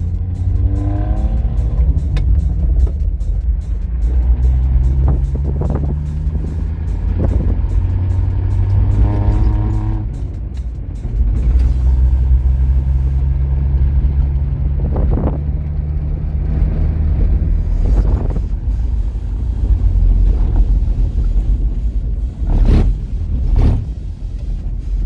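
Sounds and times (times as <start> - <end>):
engine droning in cabin: 0.0 - 25.0
gravel road noise: 0.0 - 25.0.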